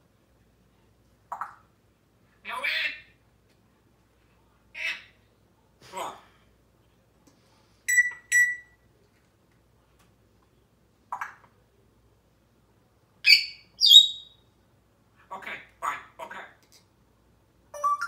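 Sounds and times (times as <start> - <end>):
parrot whistling calls: 13.3 - 14.4.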